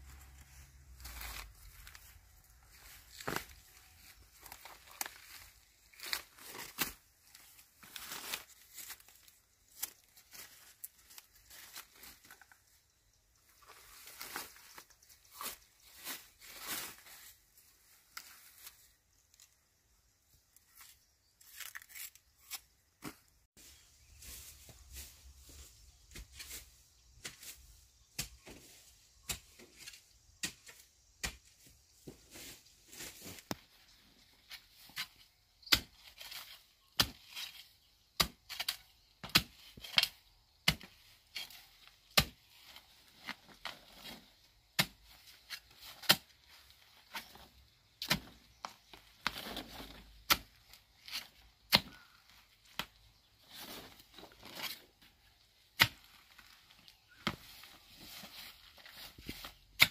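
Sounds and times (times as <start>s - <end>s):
rustling or scraping: 0.0s - 12.8s, 20.6s - 35.3s, 52.4s - 59.9s
hand tool chopping: 42.1s - 42.4s, 59.2s - 59.9s.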